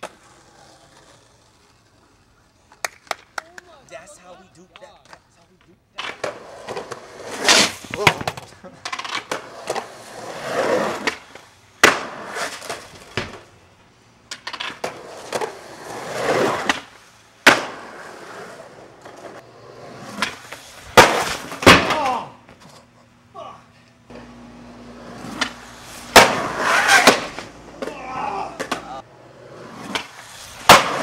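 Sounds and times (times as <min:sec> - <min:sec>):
skateboard clacking on concrete: 0:00.0 - 0:03.8, 0:04.7 - 0:10.0, 0:14.3 - 0:15.6
skateboard wheels rolling on concrete: 0:00.0 - 0:31.0.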